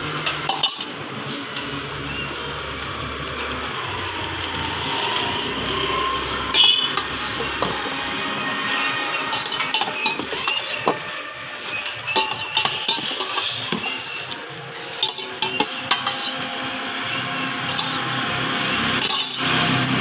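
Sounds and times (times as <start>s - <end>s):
metal spoon clinking on steel bowl: 0.3s - 2.3s, 9.2s - 16.5s, 17.7s - 18.1s, 19.0s - 19.6s.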